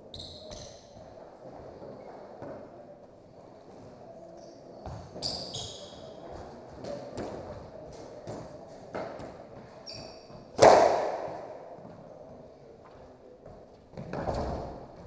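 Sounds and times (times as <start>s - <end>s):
sneaker squeaks on hardwood: 0.1s - 1.0s, 4.4s - 6.2s, 9.8s - 10.4s
squash ball hitting rackets and walls: 4.8s - 11.6s.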